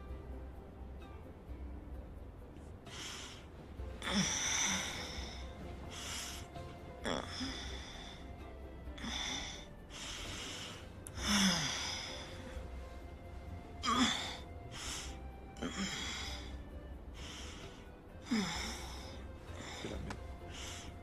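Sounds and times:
quiet background music: 0:00.0 - 0:21.0.

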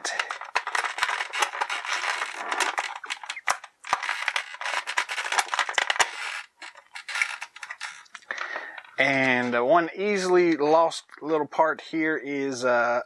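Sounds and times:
plastic tray crinkling: 0:00.0 - 0:09.6.

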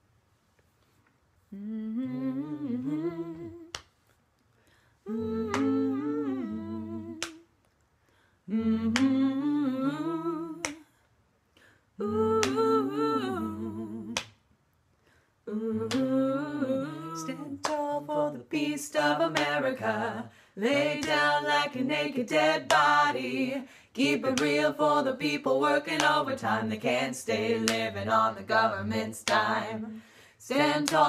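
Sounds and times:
voices humming a cappella: 0:01.5 - 0:03.8, 0:05.1 - 0:07.5, 0:08.5 - 0:10.9, 0:12.0 - 0:14.2, 0:15.5 - 0:31.0
finger snap: 0:03.4 - 0:04.5, 0:05.4 - 0:06.2, 0:07.0 - 0:08.2, 0:08.8 - 0:09.4, 0:10.4 - 0:11.1, 0:12.3 - 0:12.8, 0:14.1 - 0:14.4, 0:15.8 - 0:16.2, 0:17.6 - 0:17.9, 0:19.3 - 0:19.7, 0:21.0 - 0:21.3, 0:24.3 - 0:24.6, 0:27.6 - 0:28.0, 0:29.2 - 0:29.5.

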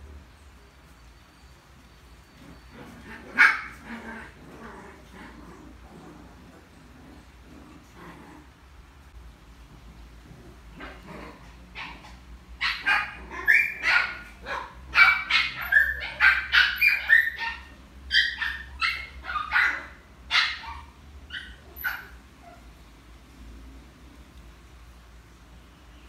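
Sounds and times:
dog yipping: 0:03.3 - 0:03.8, 0:11.8 - 0:22.7.

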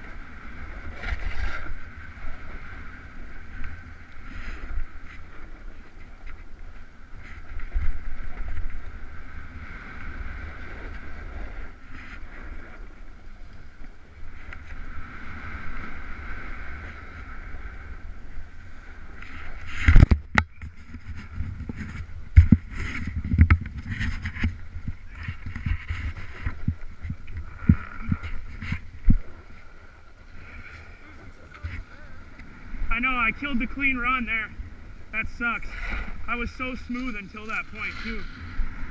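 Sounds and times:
wind rumble on microphone: 0:00.0 - 0:38.9
sharp knocks and thumps: 0:19.8 - 0:29.2
skis scraping on snow: 0:20.8 - 0:38.9.

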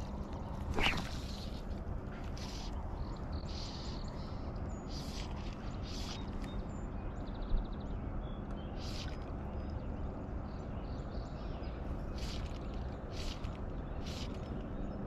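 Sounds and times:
low river rumble: 0:00.0 - 0:07.1
brief hissing swishes: 0:00.7 - 0:01.5
faint bird chirps: 0:02.3 - 0:15.0.

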